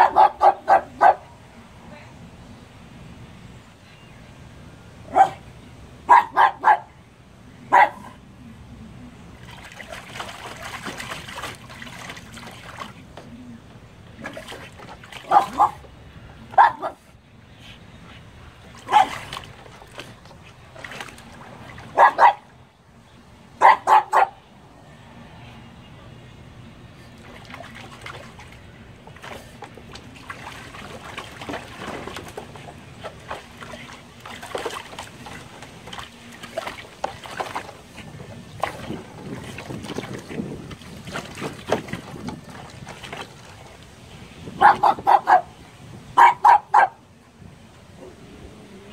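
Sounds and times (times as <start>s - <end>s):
small dog barking: 0.0s - 1.3s, 5.1s - 5.4s, 6.1s - 6.9s, 7.7s - 8.2s, 15.3s - 15.8s, 16.6s - 17.0s, 18.9s - 19.2s, 22.0s - 22.4s, 23.6s - 24.4s, 44.6s - 45.5s, 46.2s - 47.0s
water splashing in a tub: 9.2s - 16.8s, 18.5s - 22.8s, 26.9s - 45.6s.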